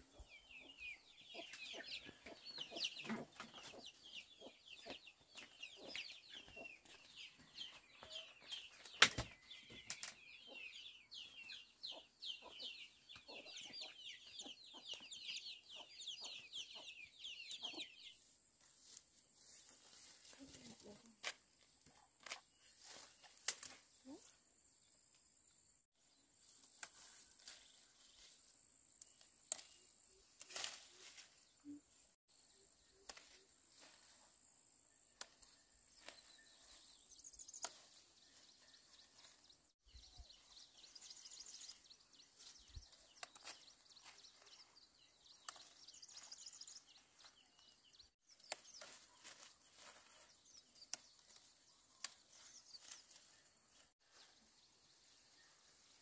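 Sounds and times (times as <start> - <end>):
rustles: 18.1 - 24.4, 26.4 - 32.2, 33.0 - 34.4, 35.2 - 39.7, 40.3 - 56.0.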